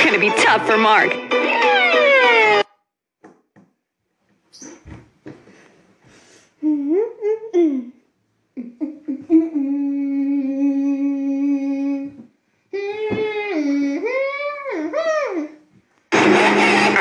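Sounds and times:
person humming: 6.6s - 15.6s.

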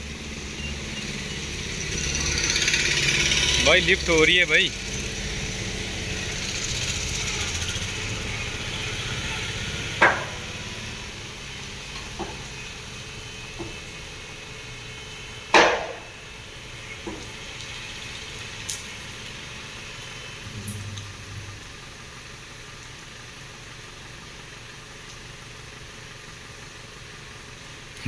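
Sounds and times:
mechanical hum of vehicle lift: 0.0s - 28.0s
loud metallic clanks: 10.0s - 10.5s.

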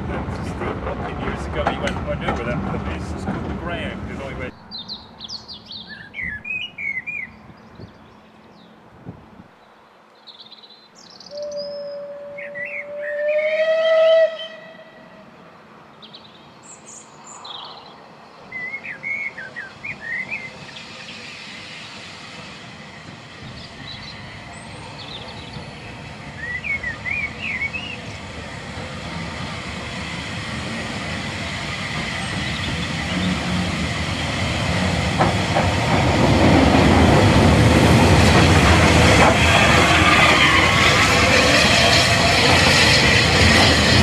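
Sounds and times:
locomotive rumble: 0.0s - 4.6s, 20.0s - 44.0s
birds chirping: 4.1s - 8.8s, 9.6s - 13.5s, 15.9s - 22.1s, 22.8s - 28.9s, 30.8s - 34.8s
steam locomotive whistle: 11.3s - 15.2s.

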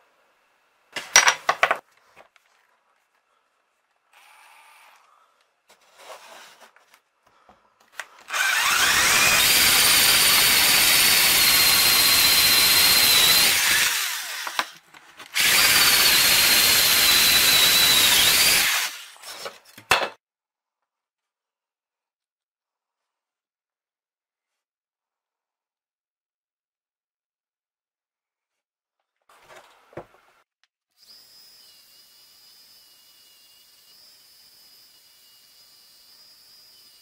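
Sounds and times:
power drill hole saw cutting wood: 8.3s - 19.3s, 31.0s - 37.0s.

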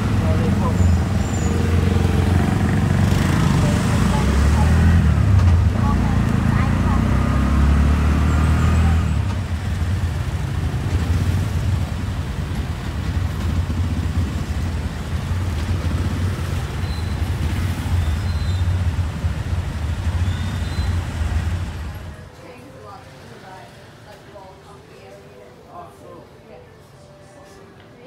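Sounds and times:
auto-rickshaw engine rumbling: 0.0s - 22.4s
street traffic noise: 0.0s - 28.0s.

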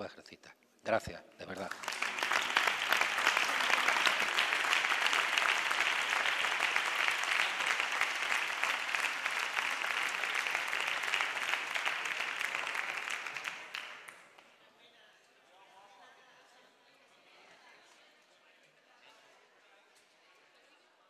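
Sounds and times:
large audience applauding: 1.5s - 14.4s.

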